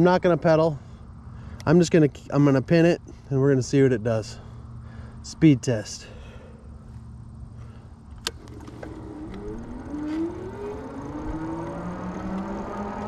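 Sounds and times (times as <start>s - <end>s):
electric motor whining: 8.3s - 13.0s.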